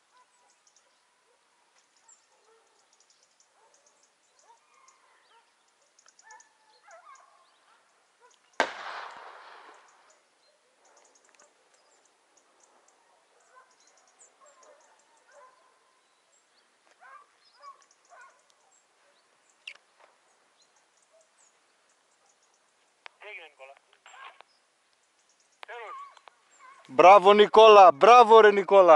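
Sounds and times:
hounds baying: 0.0 - 8.5, 9.9 - 16.1, 16.9 - 19.4, 25.7 - 27.0
distant shotgun shot: 8.6 - 10.1.

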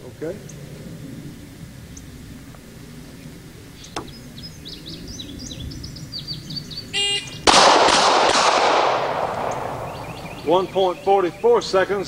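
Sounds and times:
birds chirping: 0.0 - 12.0
rapid pistol shots: 7.4 - 10.0.

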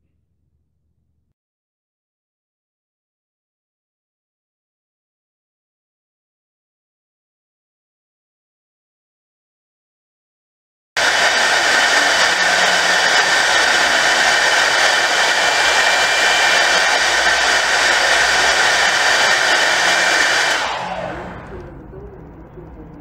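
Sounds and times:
drone motors whirring: 11.0 - 21.8.

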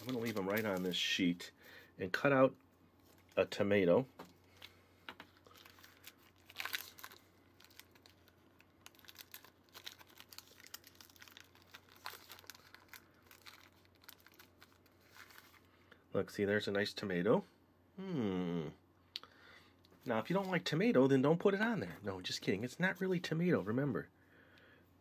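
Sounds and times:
plastic film crinkling: 0.0 - 1.2, 4.4 - 15.7.

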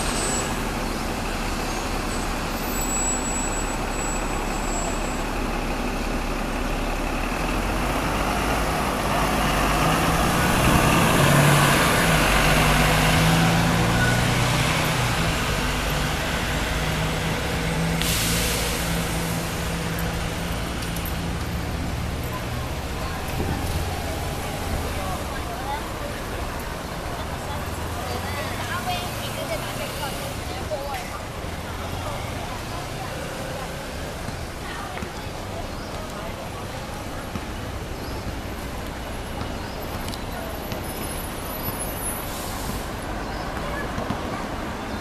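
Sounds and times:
bus driving past: 0.0 - 45.0
road noise: 0.0 - 45.0
hiss: 17.9 - 19.5.

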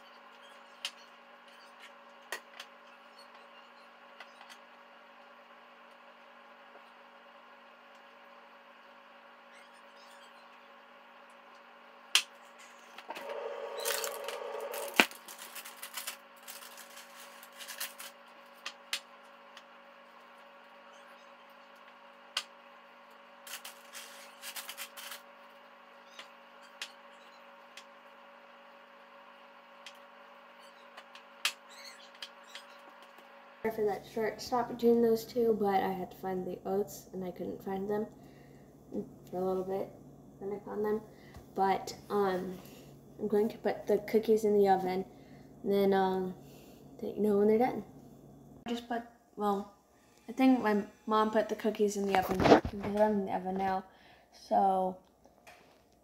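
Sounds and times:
steady background hum: 0.0 - 56.0
rustling and scraping: 12.4 - 18.7, 23.4 - 25.3, 52.0 - 53.1.

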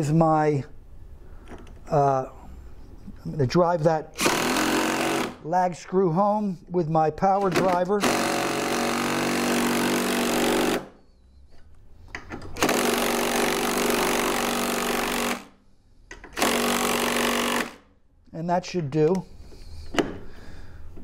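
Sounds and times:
power driver driving screw into wood: 4.2 - 5.4, 7.4 - 10.9, 12.2 - 15.5, 16.1 - 17.8.

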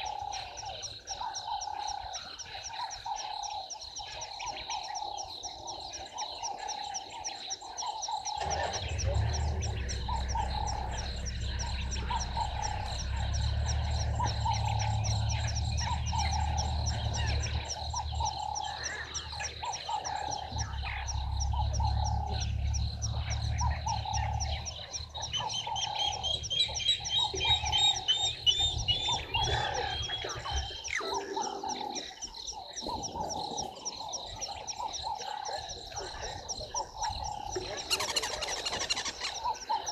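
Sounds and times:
frogs croaking: 0.0 - 39.9
low rumble: 8.4 - 30.8
steady high whine: 8.4 - 31.0.

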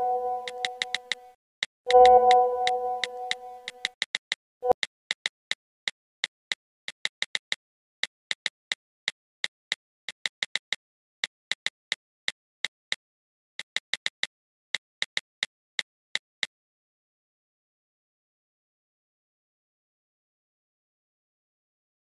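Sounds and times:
phone keyboard key clicks: 0.4 - 1.2, 1.9 - 5.3.

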